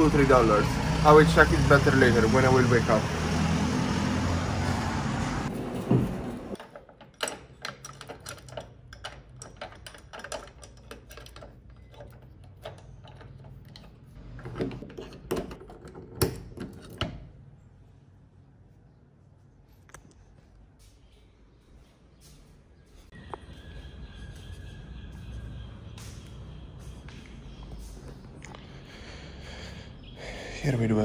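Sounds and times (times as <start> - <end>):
street traffic: 0.0 - 10.0, 10.6 - 20.1, 22.2 - 31.0
key rattling in a padlock: 6.6 - 14.1.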